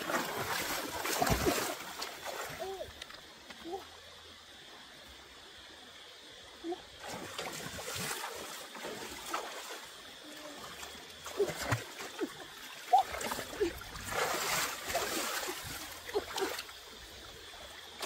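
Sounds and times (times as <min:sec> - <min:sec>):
sharp water plops: 0:00.0 - 0:02.5
hands splashing in stream water: 0:00.0 - 0:02.7, 0:11.1 - 0:16.8.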